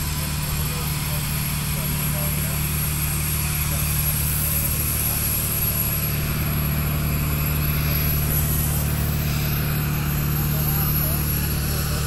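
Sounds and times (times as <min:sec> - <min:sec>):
engine drone: 0:00.0 - 0:12.0.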